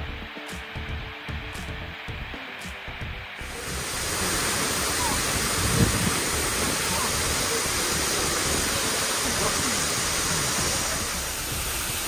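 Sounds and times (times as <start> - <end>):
waterfall rushing: 3.4 - 12.0.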